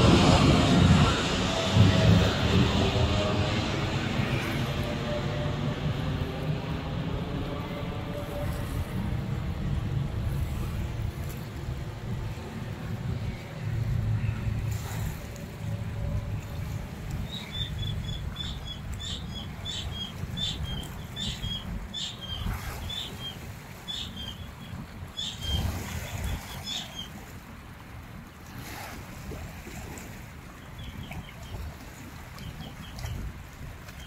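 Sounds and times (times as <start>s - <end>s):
wind buffeting microphone: 0.0s - 23.2s
jet airliner flying overhead: 0.0s - 27.4s.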